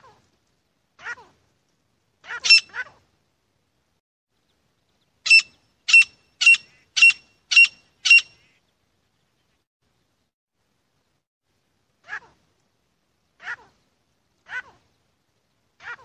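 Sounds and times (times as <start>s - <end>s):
francolin calling: 5.2s - 8.6s.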